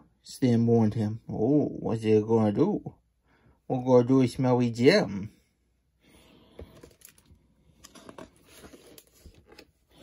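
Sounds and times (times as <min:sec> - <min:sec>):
book pages turning: 0:07.8 - 0:10.0.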